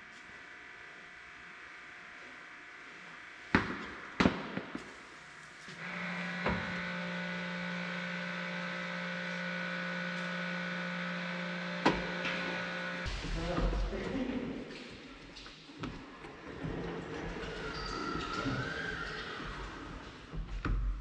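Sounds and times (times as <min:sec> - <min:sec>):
small electric motor humming: 0:04.8 - 0:13.1.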